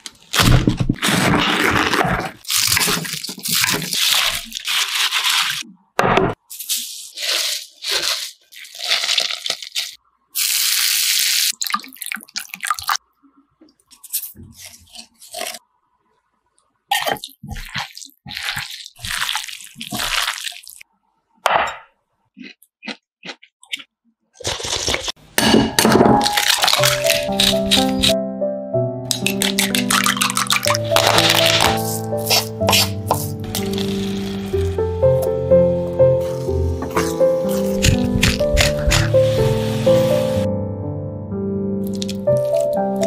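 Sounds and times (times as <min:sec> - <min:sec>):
wet crunching cabbage leaves: 0:00.0 - 0:05.6, 0:06.5 - 0:13.0, 0:14.0 - 0:15.6, 0:16.9 - 0:20.8, 0:22.4 - 0:25.3, 0:26.2 - 0:28.2, 0:29.1 - 0:35.4, 0:36.2 - 0:40.3, 0:41.8 - 0:43.0
background music: 0:25.8 - 0:43.0.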